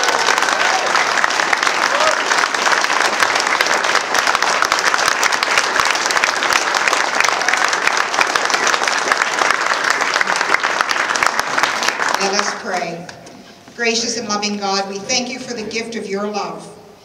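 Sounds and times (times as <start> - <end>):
crowd applauding: 0.0 - 12.8.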